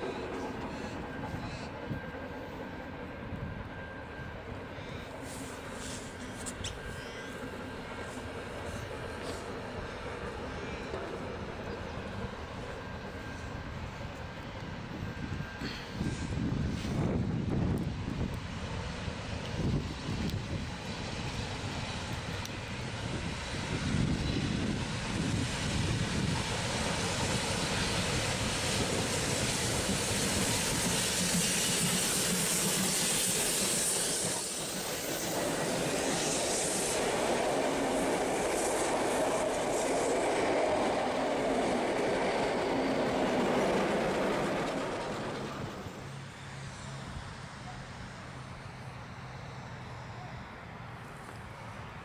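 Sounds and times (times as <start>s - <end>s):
steam locomotive exhaust: 0.0s - 50.2s
train wheels clattering on rails: 23.8s - 46.1s.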